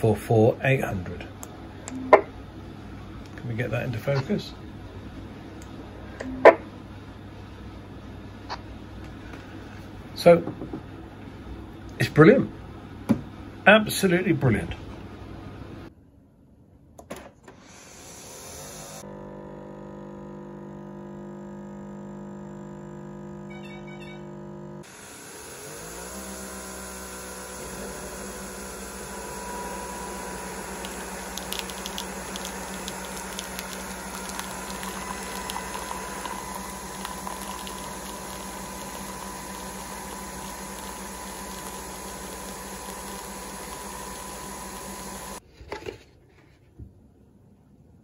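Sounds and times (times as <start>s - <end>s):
coffee machine humming: 18.2s - 45.4s
coffee streaming into mug: 27.4s - 45.4s.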